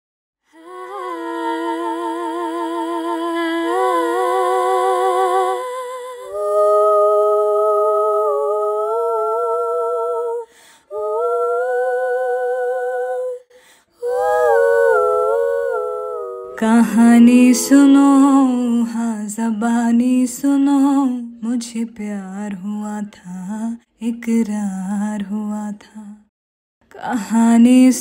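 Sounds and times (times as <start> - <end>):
women humming in harmony: 0.5 - 13.4, 14.0 - 19.4.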